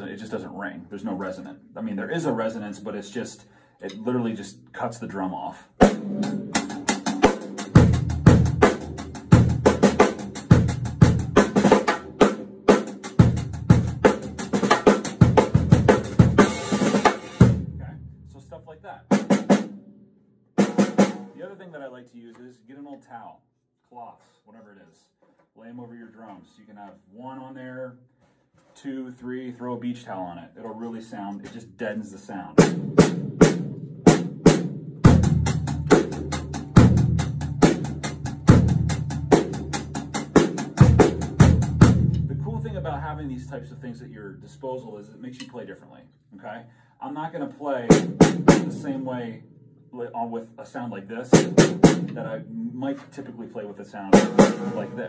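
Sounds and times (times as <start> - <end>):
drum kit groove: 1.0 - 5.0, 5.6 - 19.8, 20.6 - 22.6, 30.6 - 45.6, 47.0 - 49.4, 51.2 - 55.0
bass drum hits: 32.6 - 43.1.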